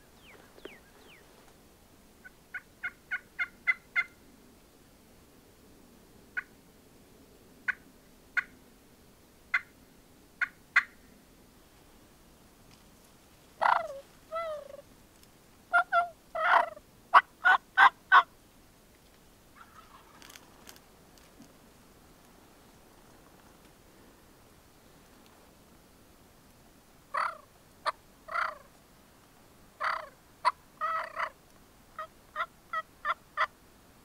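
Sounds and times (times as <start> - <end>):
loud turkey calls: 2.5 - 4.2, 10.4 - 11.1, 13.6 - 14.8, 15.7 - 18.3, 19.6 - 20.4, 27.1 - 28.7, 29.8 - 31.4, 32.0 - 33.5
turkey clucks: 10.4 - 11.0, 13.6 - 14.8, 15.7 - 18.3, 19.6 - 20.4, 27.1 - 28.7, 29.8 - 31.4, 32.0 - 33.5.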